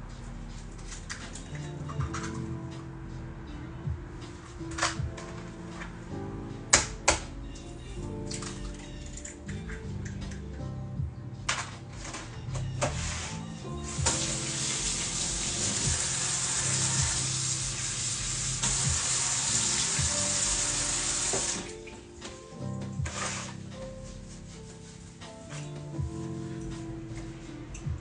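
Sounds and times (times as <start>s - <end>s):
background music: 0.0s - 28.0s
kitchen tap running: 13.9s - 21.7s.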